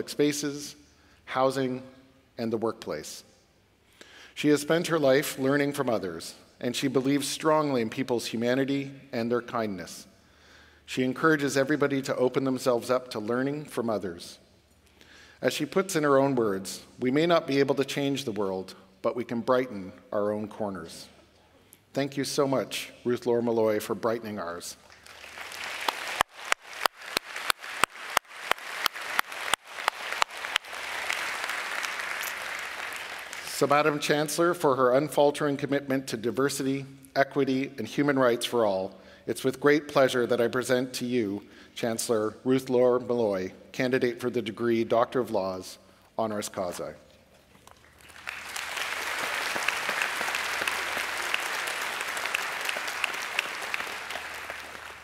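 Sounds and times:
hands clapping close to microphone: 24.8s - 33.6s, 47.7s - 55.0s
audience applauding: 24.9s - 34.0s, 47.8s - 55.0s.

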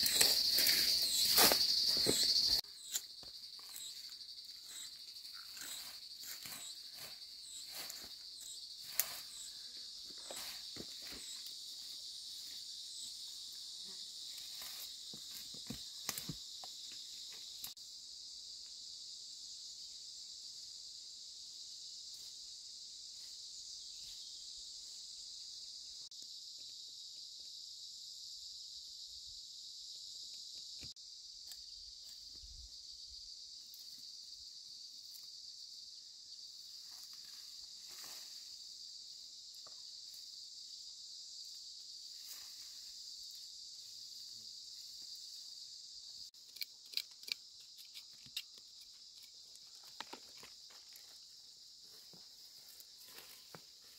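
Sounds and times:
dry weeds rustling and snapping: 0.0s - 3.1s
insects chorus: 0.0s - 53.9s.

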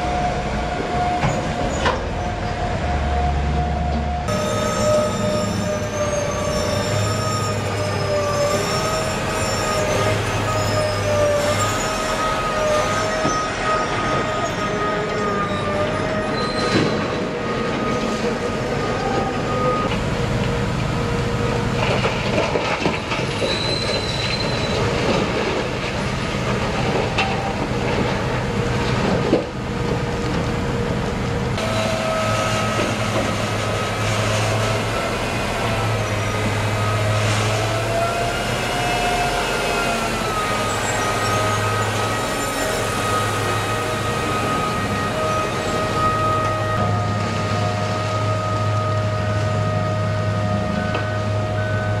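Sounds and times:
truck engine hum: 27.8s - 52.0s.

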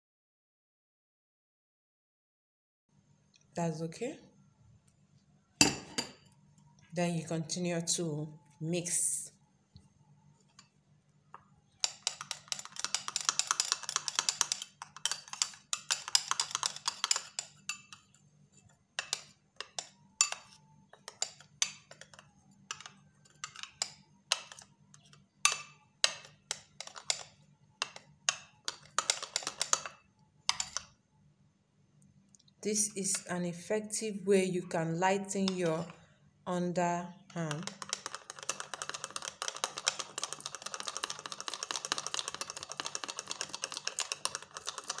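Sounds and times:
spoon scraping on glass bowl: 11.8s - 30.9s, 37.5s - 45.0s.

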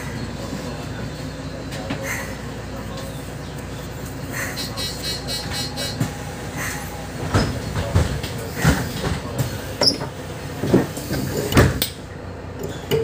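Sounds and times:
bus engine rumble: 0.0s - 13.0s
knocks and rattles: 7.2s - 12.0s.

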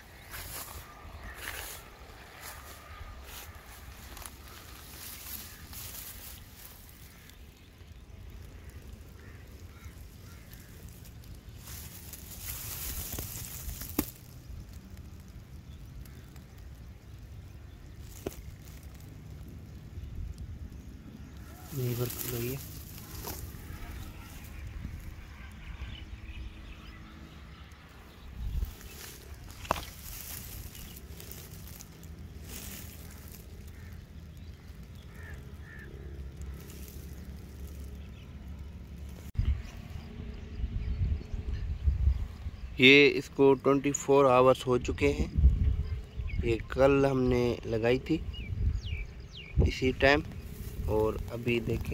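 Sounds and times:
faint bird calls: 0.0s - 19.1s, 19.7s - 38.6s
wind rumble on microphone: 8.1s - 27.2s, 27.9s - 38.3s, 39.0s - 42.8s, 44.6s - 51.9s.

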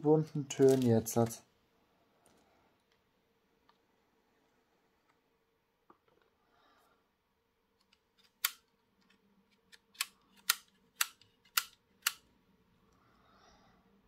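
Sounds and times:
sharp plastic clicks: 7.8s - 12.3s.

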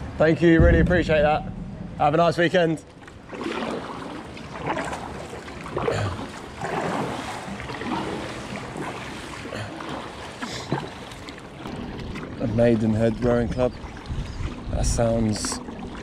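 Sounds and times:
moving water: 0.0s - 16.0s
paddle strokes splashing: 2.8s - 14.7s, 15.3s - 16.0s.

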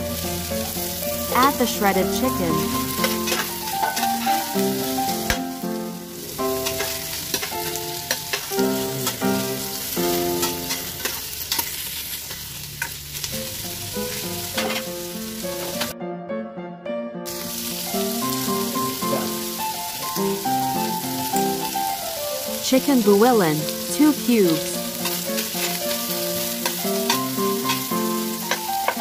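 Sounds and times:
soft background music: 0.0s - 11.4s, 13.2s - 29.0s
chicken sizzling in oil: 0.0s - 15.9s, 17.3s - 29.0s.

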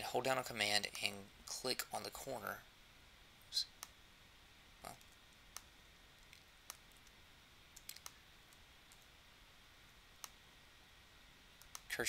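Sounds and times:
mouse and keyboard clicks: 7.8s - 9.1s, 11.6s - 11.9s.

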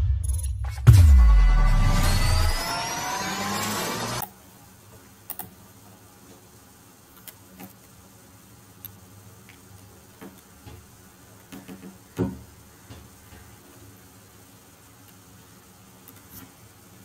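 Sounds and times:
intro music: 0.0s - 4.2s
faint steady hiss: 4.2s - 17.0s.

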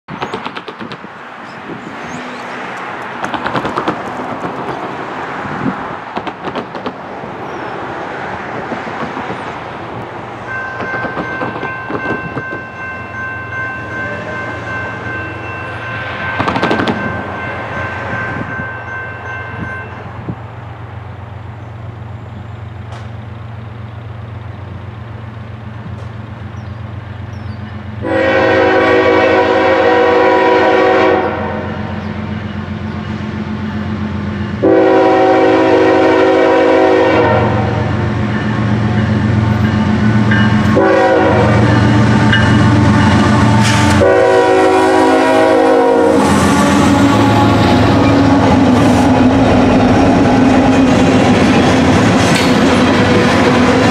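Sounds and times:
diesel locomotive engine drone: 0.1s - 53.9s
train air horn blast: 28.0s - 32.0s, 34.6s - 38.0s, 40.6s - 49.1s.

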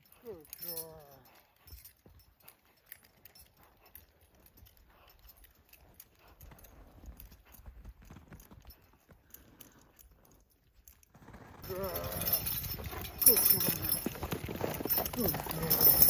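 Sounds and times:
harness chains clinking: 0.0s - 16.0s
horse walking through deep snow: 5.1s - 9.8s, 11.1s - 16.0s.

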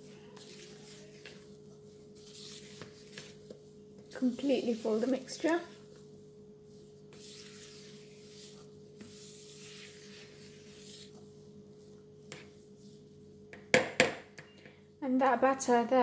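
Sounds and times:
spatula scraping plastic bowl: 0.1s - 12.6s.

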